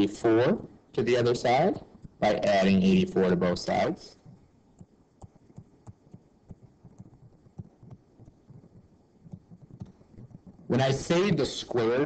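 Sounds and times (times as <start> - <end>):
stylus tapping on tablet screen: 4.2 - 10.7.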